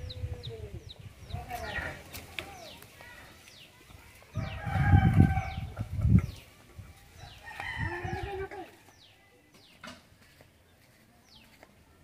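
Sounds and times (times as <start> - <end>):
hens clucking: 0.0 - 8.8
small birds chirping: 0.0 - 12.0
rooster crowing: 4.4 - 5.7.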